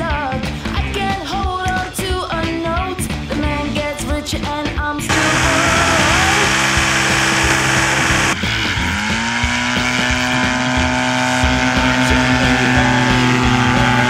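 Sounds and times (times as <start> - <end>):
microlight engine and propeller: 5.1 - 14.0.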